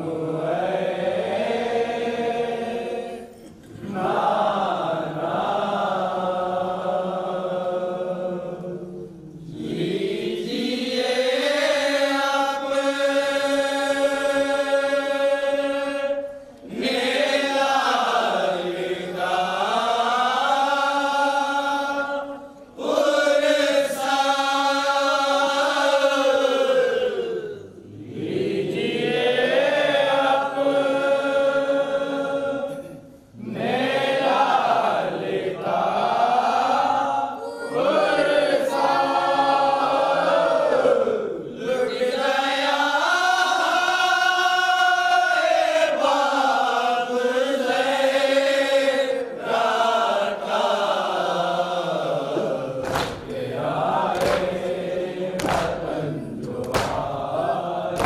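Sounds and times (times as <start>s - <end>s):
men chanting in unison: 9.5s - 58.0s
rhythmic chest-beating: 52.2s - 58.0s.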